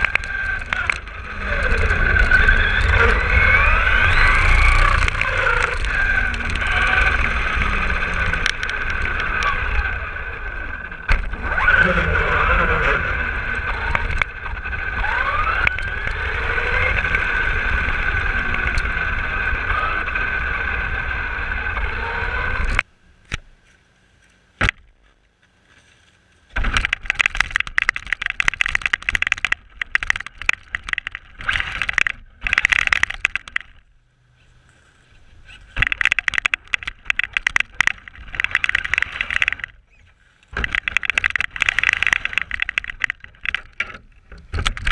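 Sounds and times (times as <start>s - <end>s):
clicks: 0.0s - 9.6s, 26.6s - 33.9s, 35.5s - 39.8s, 40.4s - 44.9s
tyre and wind rumble: 0.0s - 22.8s
rc car motor whine: 0.0s - 22.9s, 26.6s - 33.9s, 35.0s - 44.9s.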